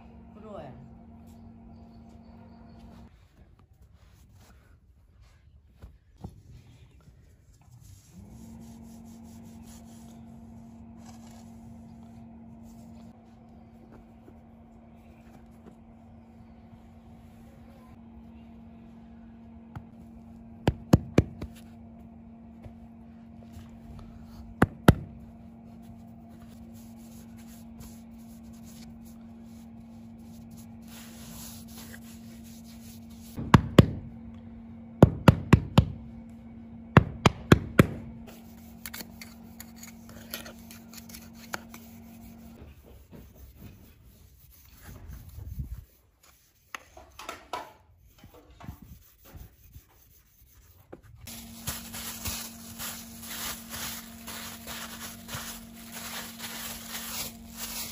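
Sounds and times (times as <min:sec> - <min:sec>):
steady low hum: 0:00.0 - 0:57.9
metal trowel scraping sand: 0:38.3 - 0:42.5
hands pressing sand: 0:51.2 - 0:57.9.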